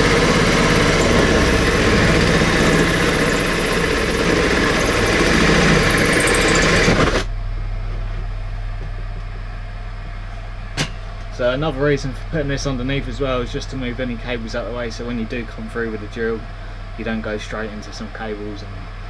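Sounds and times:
cordless drill boring: 0.0s - 7.3s
low steady hum: 7.3s - 19.0s.

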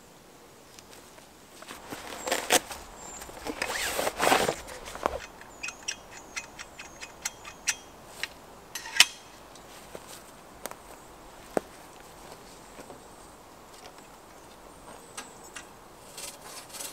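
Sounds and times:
saw blade scraping from sheath: 1.9s - 7.9s, 16.1s - 16.9s
light sharp ticks of saw: 5.0s - 9.3s.

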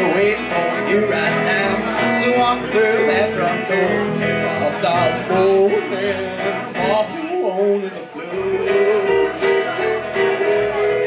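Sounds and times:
electric guitar lead with bent notes: 0.0s - 11.0s
strummed acoustic guitar: 0.0s - 11.0s
upright bass walking line: 0.0s - 11.0s.

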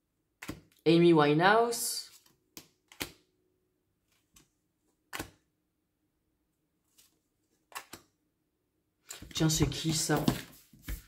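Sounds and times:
cards tapping and flicking: 0.4s - 0.8s, 2.2s - 3.2s, 5.1s - 5.4s, 7.7s - 8.1s.

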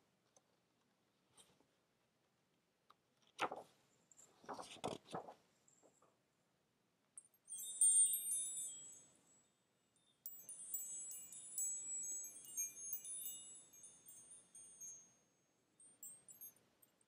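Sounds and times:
high tinkling chimes: 7.2s - 17.0s.

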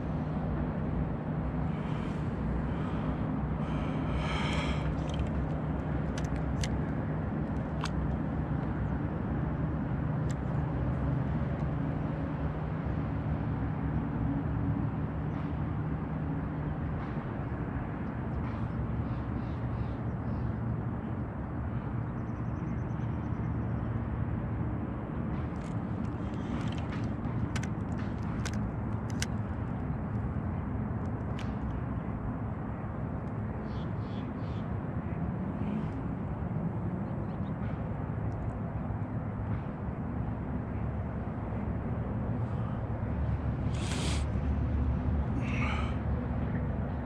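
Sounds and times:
boat motor humming: 0.9s - 11.4s
broad rushing noise: 42.1s - 46.9s.

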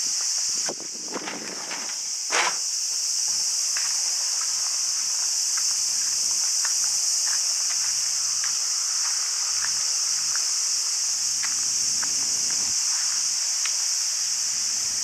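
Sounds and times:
insects droning: 0.0s - 15.0s
foot scuffing: 0.6s - 12.2s.

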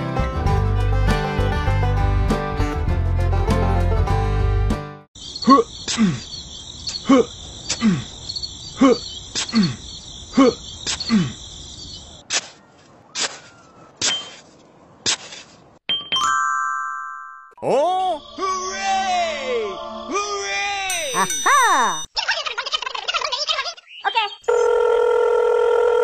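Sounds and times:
crickets chirring: 5.2s - 12.2s
hoe chopping into sand: 12.2s - 15.6s.

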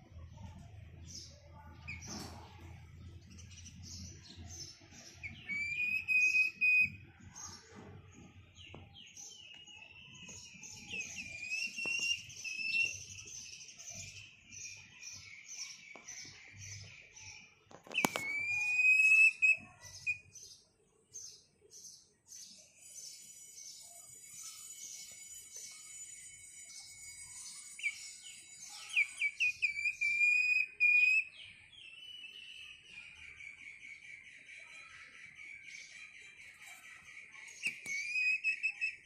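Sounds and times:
young hen chirping: 0.3s - 15.0s, 16.7s - 20.3s, 24.3s - 39.0s
sharp click: 17.9s - 18.5s.

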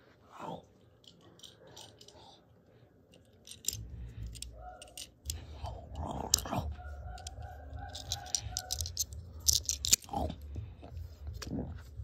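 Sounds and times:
plastic toy pieces clicking: 3.1s - 10.4s.

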